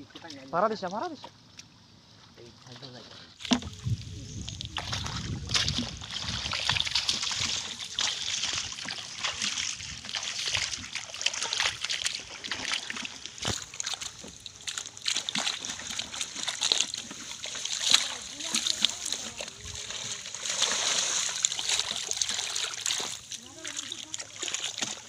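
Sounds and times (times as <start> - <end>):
water trickling through mesh: 2.6 - 25.0
fish flapping and splashing: 3.4 - 25.0.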